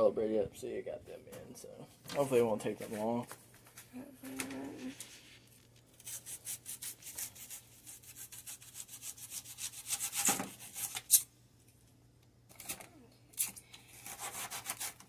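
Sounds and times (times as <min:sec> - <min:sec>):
knife cutting onion: 0:06.0 - 0:11.3, 0:13.4 - 0:15.0.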